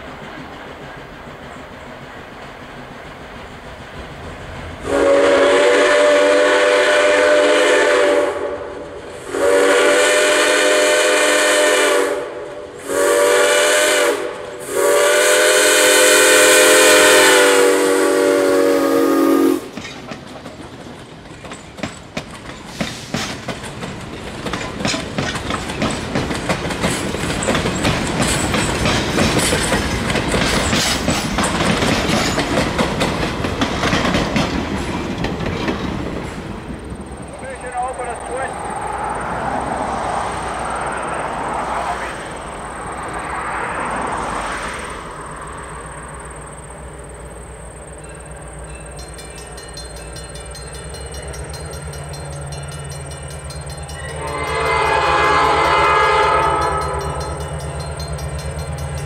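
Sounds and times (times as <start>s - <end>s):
train wheels clacking on rails: 0.0s - 8.0s, 18.5s - 38.6s, 47.6s - 59.0s
locomotive horn blasts: 4.8s - 19.7s, 54.1s - 57.4s.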